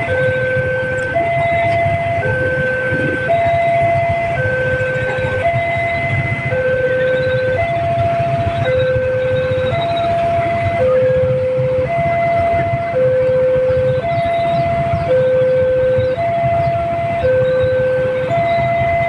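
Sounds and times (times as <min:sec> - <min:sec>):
level-crossing two-tone alarm: 0:00.0 - 0:19.0.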